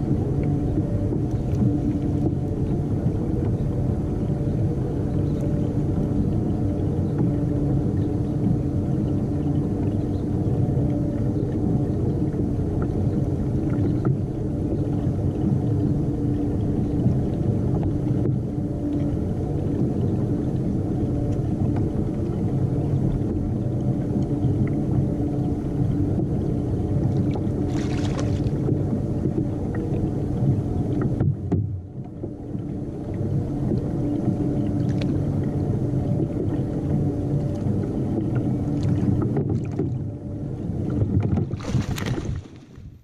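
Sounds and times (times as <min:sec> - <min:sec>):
wind and water rumble: 0:00.0 - 0:43.0
fish splashing: 0:27.7 - 0:28.6, 0:41.5 - 0:42.9.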